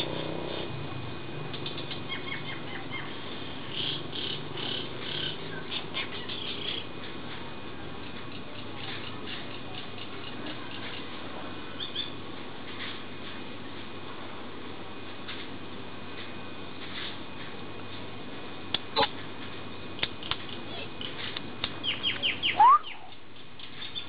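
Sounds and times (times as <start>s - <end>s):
birds chirping: 1.7s - 6.9s, 20.5s - 24.0s
faint steady high tone: 22.5s - 23.1s.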